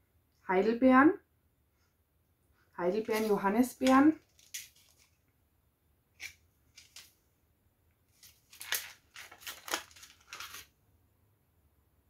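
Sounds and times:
plastic packaging crinkling: 3.0s - 5.2s, 6.2s - 7.2s, 8.1s - 10.7s.

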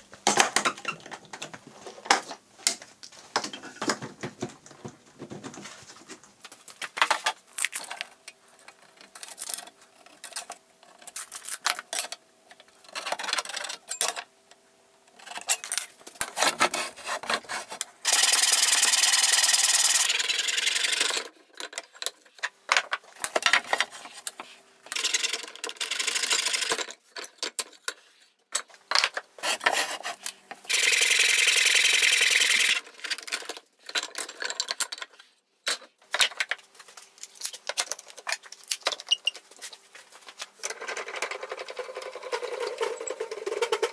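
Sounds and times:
hand saw cutting wood: 16.2s - 20.2s, 29.4s - 30.4s.

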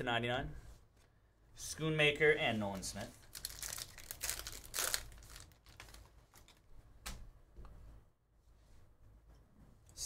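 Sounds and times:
foil wrapper crinkling: 3.2s - 6.6s.

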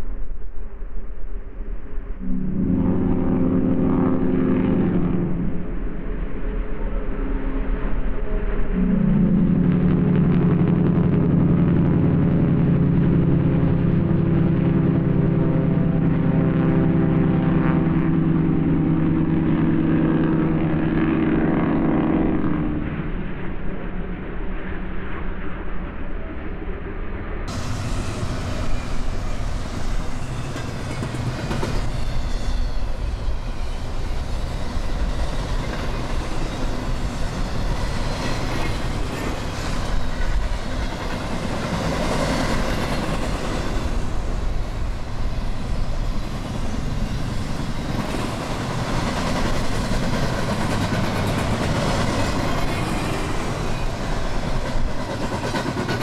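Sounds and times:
locomotive droning: 2.0s - 23.9s, 27.5s - 56.0s
train cars rumbling and clattering: 27.5s - 56.0s.

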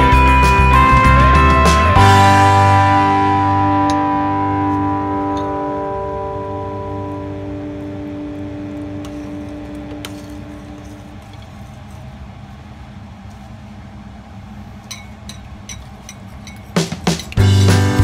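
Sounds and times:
sustained music chord: 0.0s - 11.2s
low steady hum: 0.7s - 17.4s.

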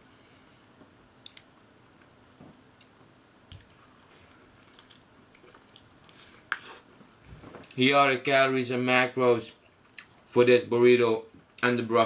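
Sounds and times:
soft mouth clicks: 1.2s - 1.5s
person chewing burrito: 2.8s - 7.8s, 9.7s - 10.3s.

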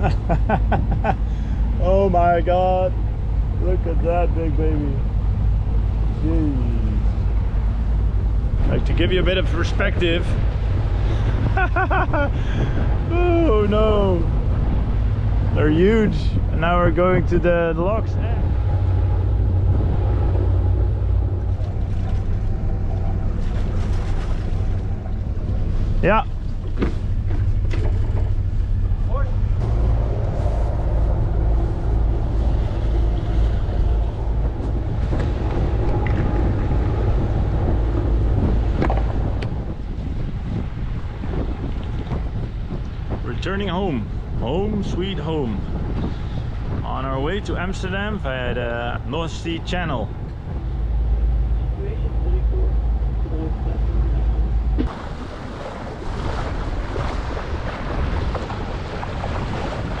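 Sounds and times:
water rushing along hull: 0.0s - 60.0s
wind buffeting the microphone: 0.0s - 60.0s
diesel engine running: 12.4s - 40.0s.

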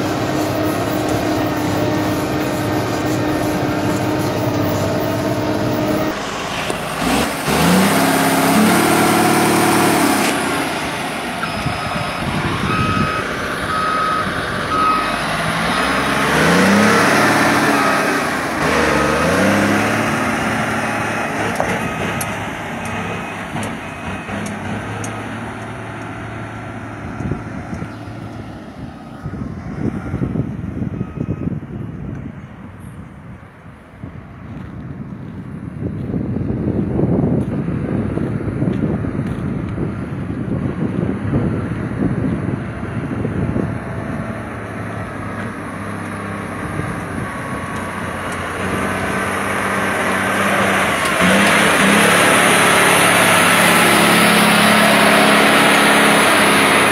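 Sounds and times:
diesel engine revving: 0.0s - 32.2s, 36.5s - 56.9s
back-up alarm beeping: 11.4s - 16.0s.

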